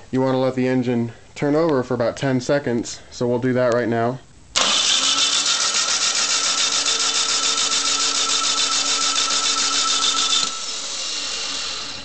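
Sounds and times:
starter motor cranking engine: 4.6 - 12.0.

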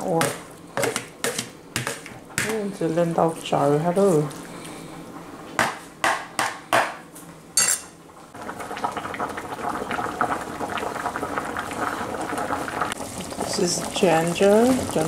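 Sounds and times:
crackling sizzle in pot: 7.0 - 15.0
metal spoon striking pot: 7.6 - 7.9.

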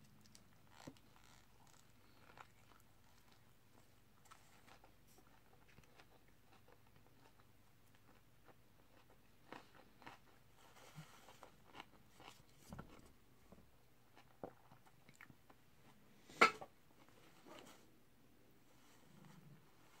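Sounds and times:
person chewing and lip smacking: 0.0 - 10.5, 14.1 - 15.6.

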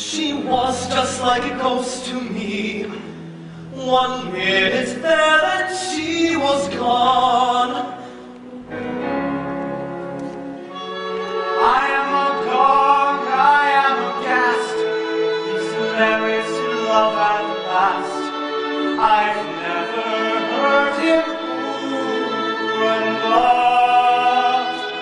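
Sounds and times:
musical theatre singing: 0.0 - 25.0
orchestral accompaniment: 0.0 - 25.0.

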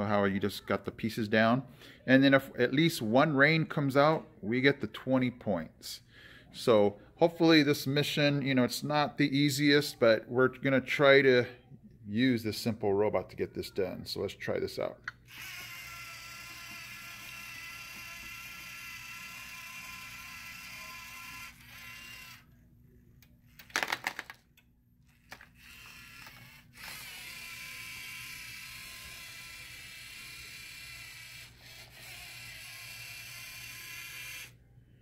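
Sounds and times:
robot motors whining: 15.3 - 22.5, 25.1 - 34.6
loud plastic clatter: 23.6 - 24.4.

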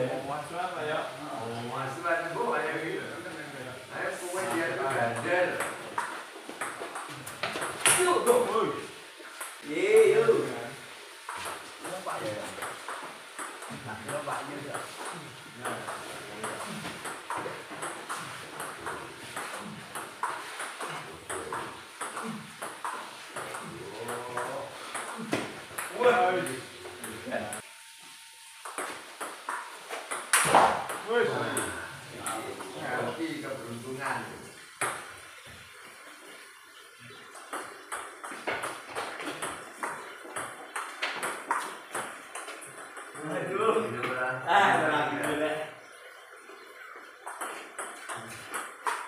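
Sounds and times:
table tennis ball hits: 5.1 - 8.5, 11.2 - 27.2, 28.6 - 31.8, 37.4 - 43.4, 47.2 - 49.0
ball hitting bats: 28.7 - 31.1.

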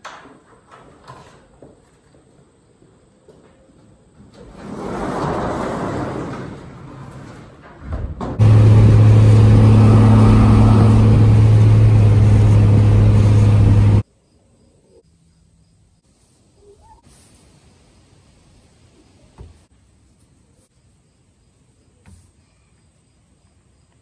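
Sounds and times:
road noise: 4.5 - 14.0
truck engine drone: 8.3 - 14.0
noisy sound: 8.4 - 14.0.

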